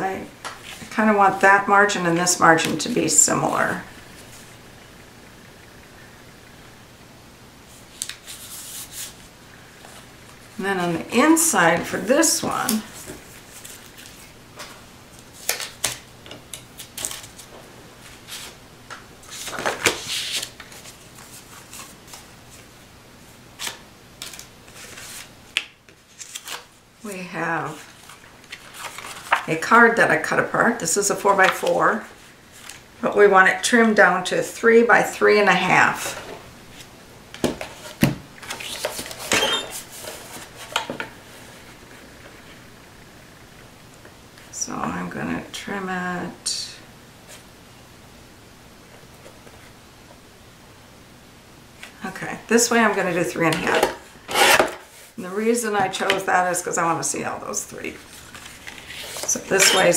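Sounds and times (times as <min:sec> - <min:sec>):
paper rustling: 0:11.8 - 0:16.0, 0:19.2 - 0:22.7, 0:23.6 - 0:25.3, 0:25.9 - 0:26.8, 0:27.7 - 0:29.5, 0:37.5 - 0:42.1, 0:58.0 - 0:59.9.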